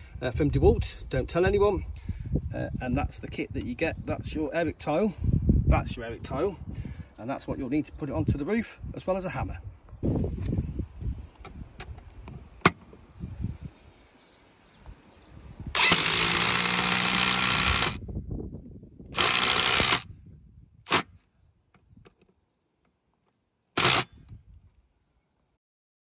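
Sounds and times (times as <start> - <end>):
impact driver driving a screw: 15.8 - 18.0, 19.2 - 20.0, 20.9 - 21.1, 23.8 - 24.1.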